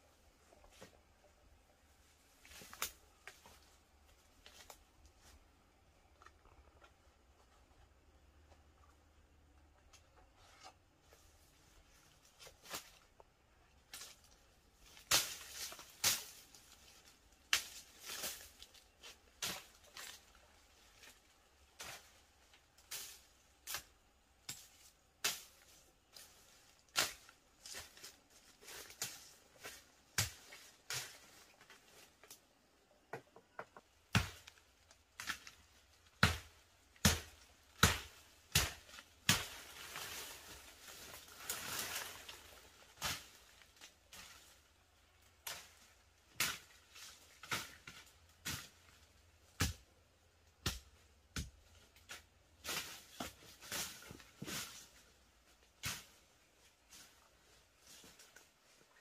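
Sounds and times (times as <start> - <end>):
twigs and brush cracking and rustling: 0.4 - 7.7, 11.0 - 32.8, 33.8 - 59.0.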